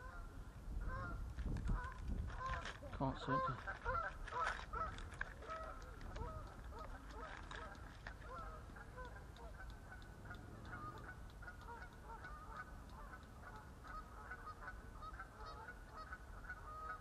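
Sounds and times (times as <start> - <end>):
waterbirds calling: 0.0 - 17.0
low steady rumble: 4.8 - 16.9.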